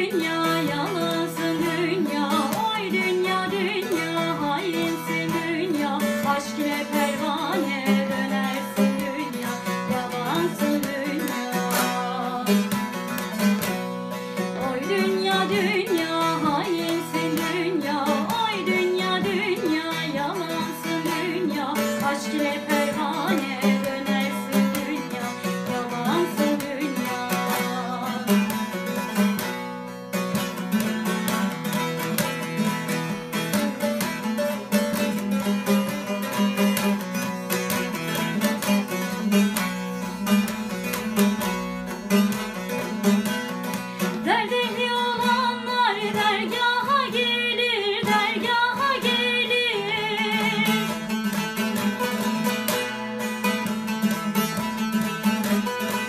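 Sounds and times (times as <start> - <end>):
woman singing: 0.0 - 29.5, 44.0 - 52.8
plucked long-necked lute melody: 0.0 - 56.0.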